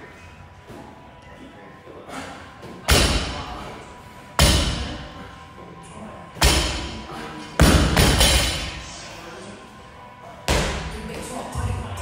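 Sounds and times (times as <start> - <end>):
medicine ball thudding: 2.8 - 3.5, 4.4 - 5.0, 7.6 - 8.7, 10.5 - 11.1.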